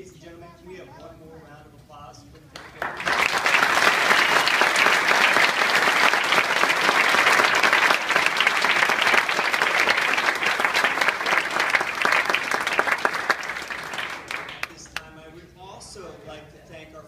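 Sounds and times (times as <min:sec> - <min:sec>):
audience applauding: 0:02.6 - 0:15.0.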